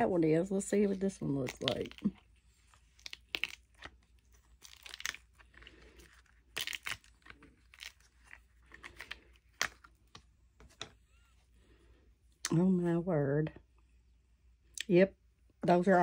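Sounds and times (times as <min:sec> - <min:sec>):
mold peeling and crackling: 0:00.8 - 0:10.2.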